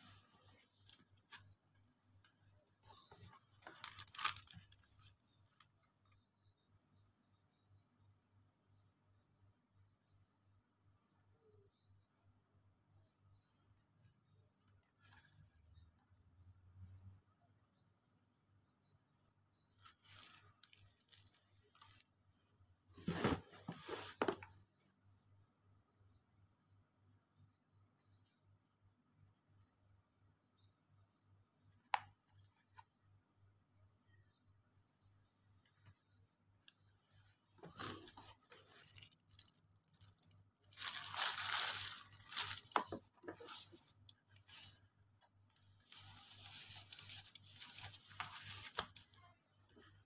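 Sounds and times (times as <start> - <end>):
plastic packaging rustling: 3.1 - 5.1, 19.9 - 22.0, 37.6 - 44.8, 45.8 - 49.1
plastic bag crumpling: 3.6 - 4.7, 38.7 - 43.7.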